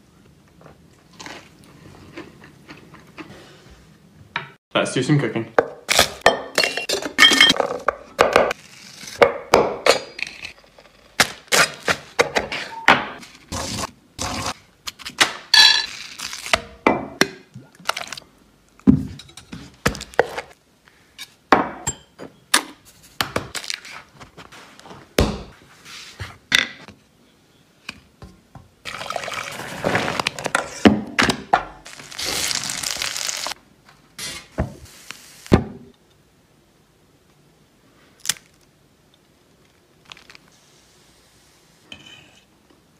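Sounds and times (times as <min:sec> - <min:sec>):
rustling noise: 0:22.9 - 0:26.4.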